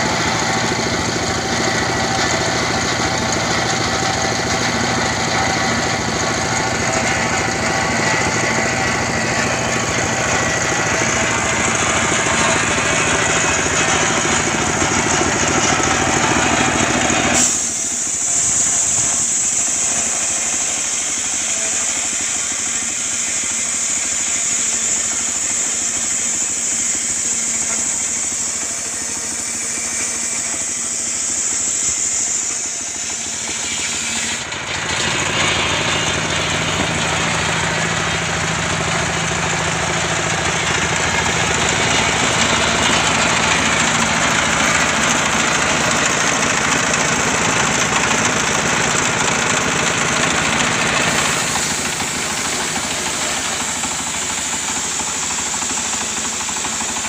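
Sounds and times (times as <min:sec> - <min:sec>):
circular saw cutting log: 0:00.0 - 0:57.0
diesel engine running: 0:00.0 - 0:57.0
high hiss: 0:00.0 - 0:57.0.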